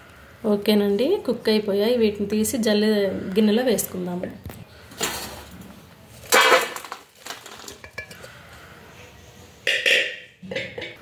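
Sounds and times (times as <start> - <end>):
steel vessels clattering: 6.2 - 8.4.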